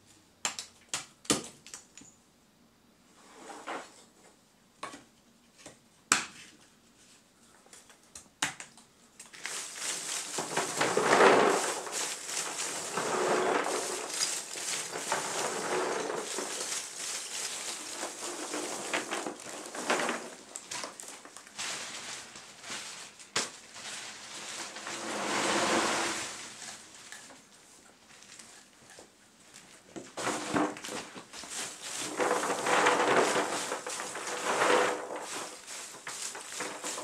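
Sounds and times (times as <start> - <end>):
charcoal pieces clattering: 8.5 - 22.4, 30.2 - 37.0.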